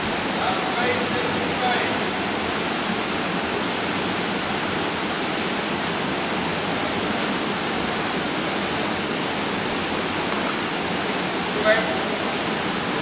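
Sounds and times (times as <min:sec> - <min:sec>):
swimming pool hall rushing hiss: 0:00.0 - 0:13.0.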